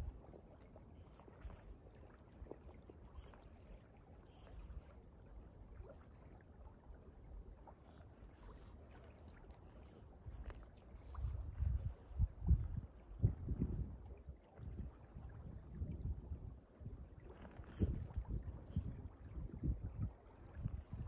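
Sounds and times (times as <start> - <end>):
wind rumbling on microphone: 0.0 - 0.3, 8.2 - 21.0
flowing river water: 0.0 - 21.0.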